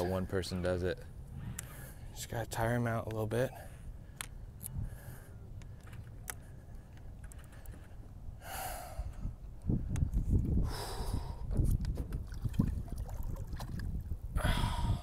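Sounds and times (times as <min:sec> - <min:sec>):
man breathing hard: 0:07.4 - 0:09.4, 0:10.6 - 0:11.6, 0:14.4 - 0:15.0.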